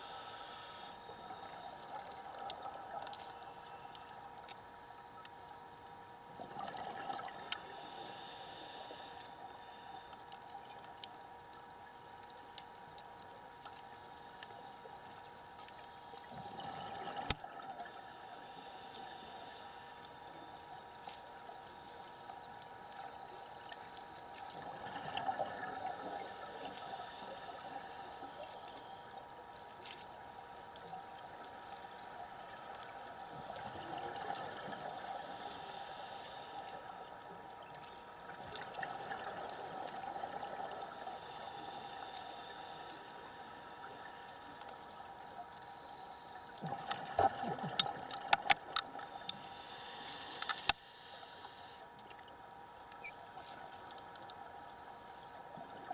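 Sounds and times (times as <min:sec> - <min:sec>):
faint steady tone: 0:00.0 - 0:55.9
sharp clicks: 0:47.8 - 0:50.8.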